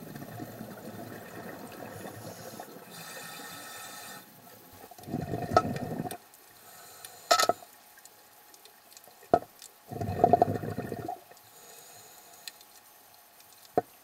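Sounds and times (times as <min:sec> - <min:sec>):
regulator bubbles underwater: 0:00.0 - 0:07.0, 0:09.1 - 0:11.4.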